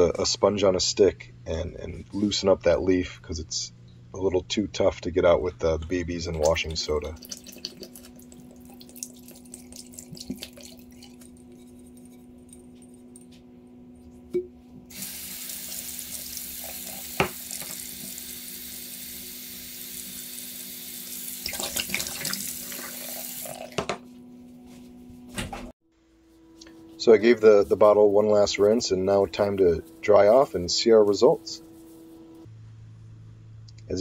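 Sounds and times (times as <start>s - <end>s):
water poured from bottle: 6.3s - 12.6s, 21.4s - 23.8s
tap water running: 6.3s - 12.9s, 14.8s - 24.0s.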